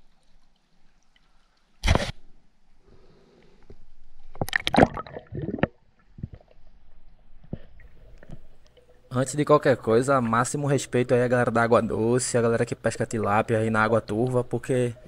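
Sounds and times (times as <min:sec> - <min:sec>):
small underwater clicks: 0:00.0 - 0:02.4
water splashing: 0:04.2 - 0:10.6
underwater gurgling bubbles: 0:04.3 - 0:06.6.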